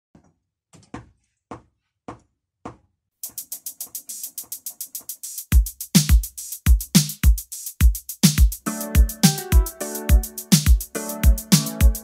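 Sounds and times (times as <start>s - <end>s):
drum machine snare hits: 3.2s - 12.0s.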